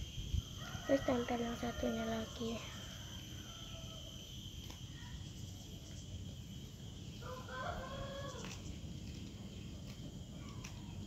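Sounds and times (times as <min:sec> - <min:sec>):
rooster crowing: 0:00.5 - 0:04.2, 0:07.2 - 0:08.6.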